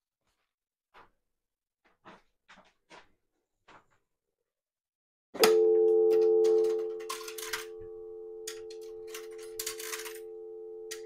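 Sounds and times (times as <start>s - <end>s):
two-note dial tone: 5.4s - 11.0s
handset clicks and rattles: 6.1s - 7.7s, 8.5s - 10.2s.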